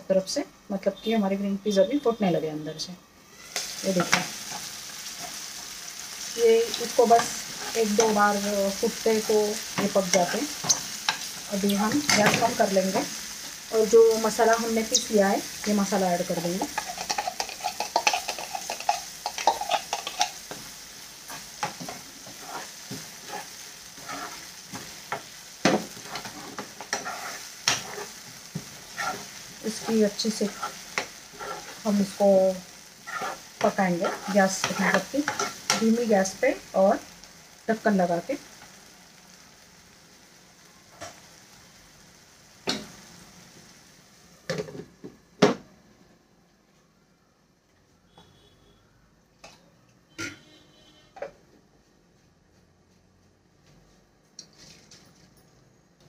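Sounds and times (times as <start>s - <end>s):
hot oil sizzling: 0.2s - 45.6s
spoon scraping a frying pan: 9.6s - 13.0s, 16.6s - 32.1s, 33.0s - 36.0s.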